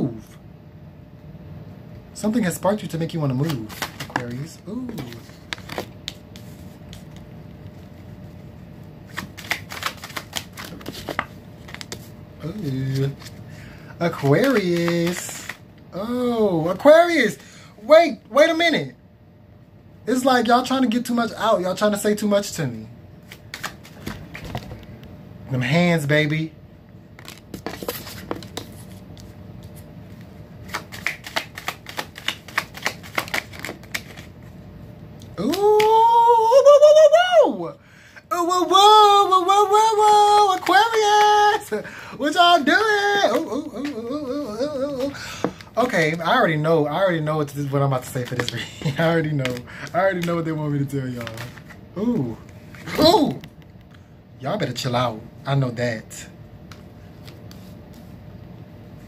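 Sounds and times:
cards being shuffled: 3.1s - 13.4s, 14.0s - 15.6s, 23.2s - 24.9s, 27.2s - 34.4s, 38.5s - 46.3s, 47.5s - 53.7s, 56.7s - 58.2s
man singing ooh: 35.4s - 45.2s.

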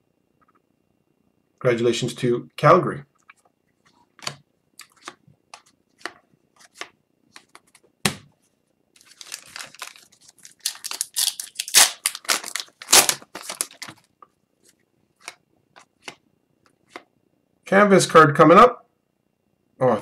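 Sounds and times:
card pack wrapper crinkling: 9.0s - 14.1s.

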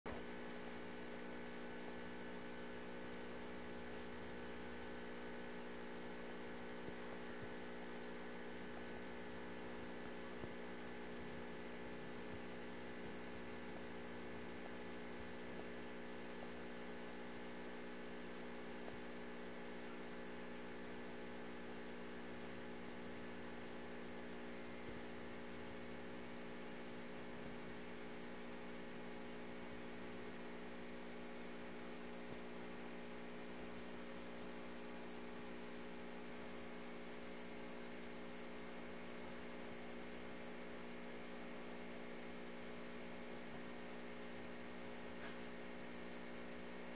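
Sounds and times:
fluorescent light buzzing: 0.1s - 46.9s.

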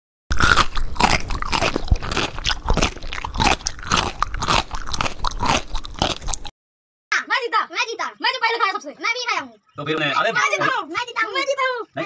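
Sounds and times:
crisp shells crunching: 0.3s - 6.5s.

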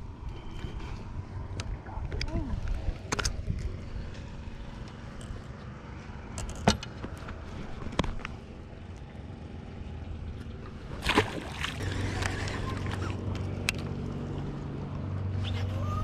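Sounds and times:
steady low hum: 0.0s - 15.8s.

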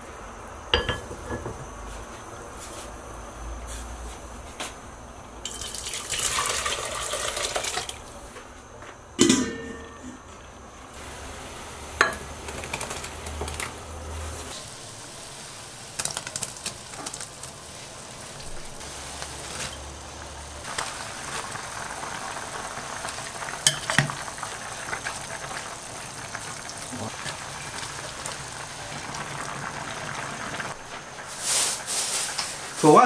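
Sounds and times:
broth boiling and bubbling: 5.4s - 8.2s, 10.9s - 33.0s
metal utensil clinking on pot: 9.2s - 10.2s, 23.7s - 24.1s.

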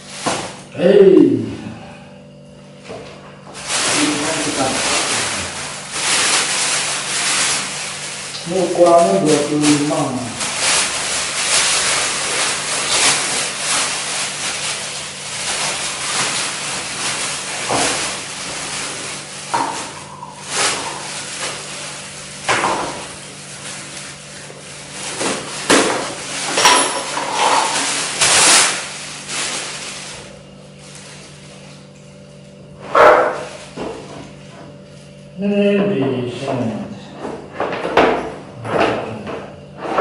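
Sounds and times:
plastic wrapping crinkling: 3.6s - 31.9s, 33.1s - 34.0s.

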